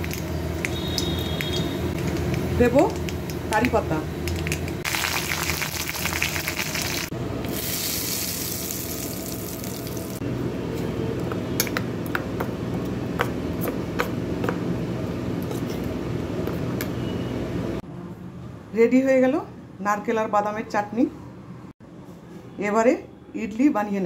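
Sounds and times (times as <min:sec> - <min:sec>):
spices sizzling in hot oil: 0:00.0 - 0:10.2.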